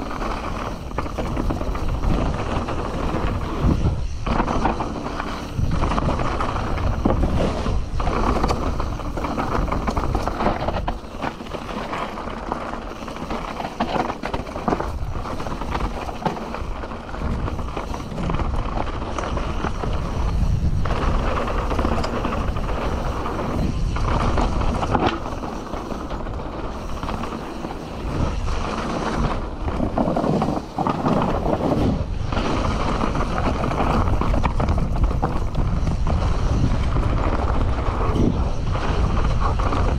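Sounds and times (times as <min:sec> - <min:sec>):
bike knocks and rattles: 0:00.0 - 0:39.9
bike tyre noise on dirt: 0:00.0 - 0:39.9
wind buffeting microphone: 0:00.0 - 0:39.9.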